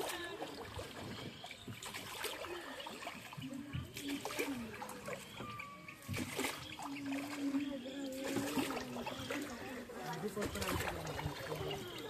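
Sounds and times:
oar strokes slapping: 0.0 - 12.0
water splashing around a boat: 0.0 - 12.0.

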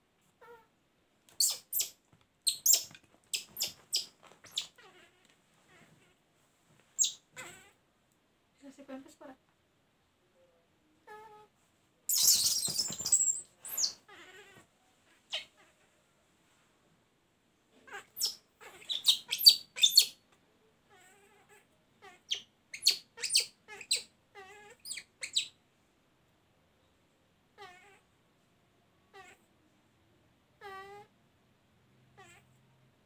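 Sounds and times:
baby monkey squealing: 1.4 - 4.9, 7.0 - 7.7, 12.1 - 14.5, 17.9 - 20.2, 22.1 - 25.6.

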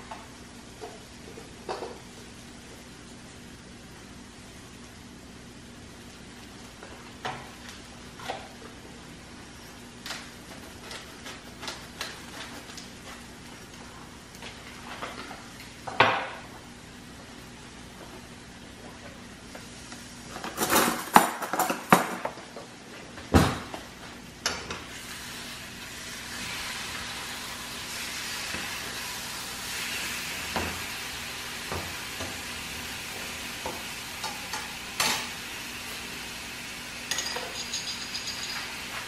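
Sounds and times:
metallic clinks against pan: 37.1 - 38.7.

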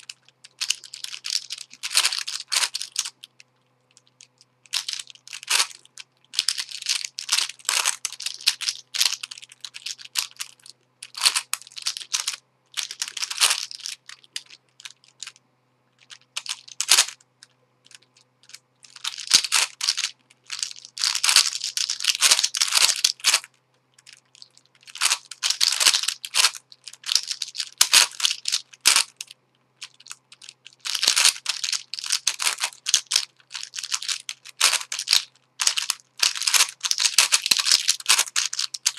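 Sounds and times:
plastic puzzle clicking: 16.0 - 38.9.

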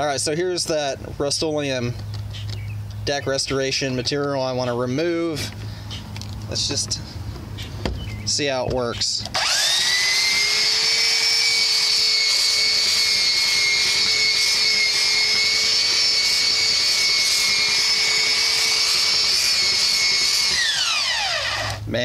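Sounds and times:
belt sander whining: 9.2 - 21.9.

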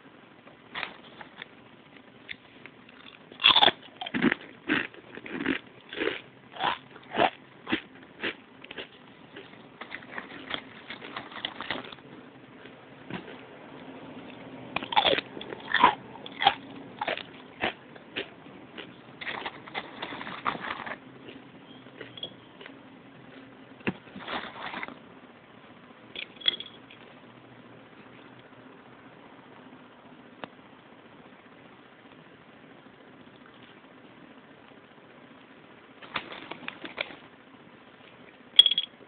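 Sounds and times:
potato chips crunching: 2.9 - 13.4, 14.8 - 21.4.

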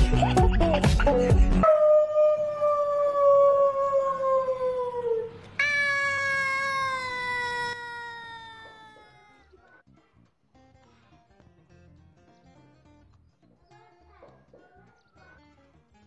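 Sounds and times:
cat yowling: 3.7 - 9.8.

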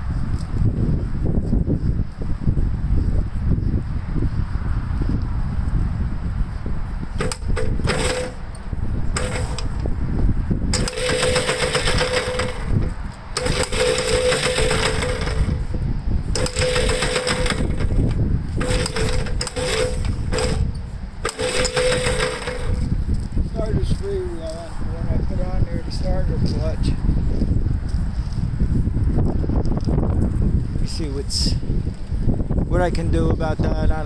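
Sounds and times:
wind rumbling on microphone: 0.0 - 34.0
electric starter cranking engine: 7.2 - 10.0, 10.7 - 15.7, 16.3 - 23.0.

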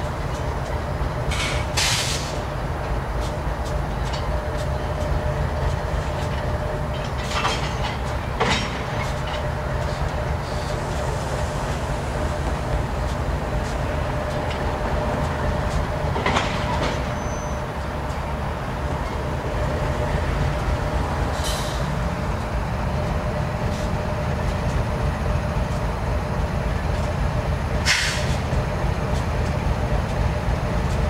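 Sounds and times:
locomotive engine rumble: 0.0 - 31.0
air hiss bursts: 1.3 - 2.4, 27.8 - 28.4.

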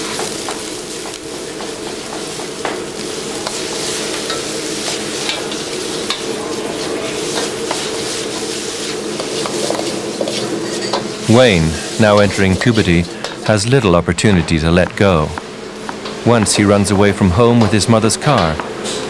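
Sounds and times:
food sizzling in a wok: 0.0 - 13.5
metal ladle scraping and clinking: 10.3 - 11.1.

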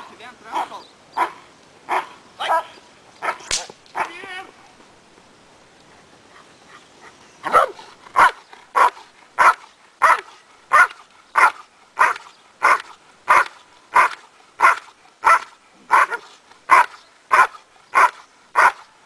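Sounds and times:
dog barking hard: 0.6 - 4.2, 7.4 - 18.9.

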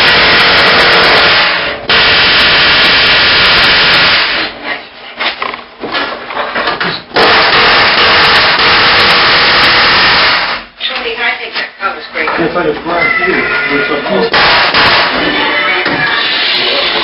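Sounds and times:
power tool cutting steel: 7.2 - 10.6.

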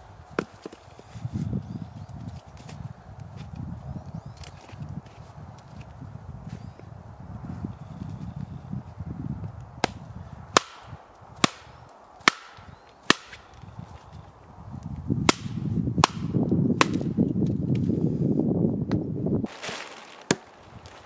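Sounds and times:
wooden baton striking hatchet: 10.6 - 13.4, 15.3 - 17.1.

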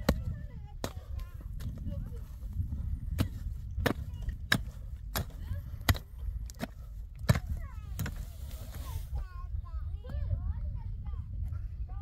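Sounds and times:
pick striking stony soil: 0.0 - 9.0
wind rumble on microphone: 0.0 - 12.0.

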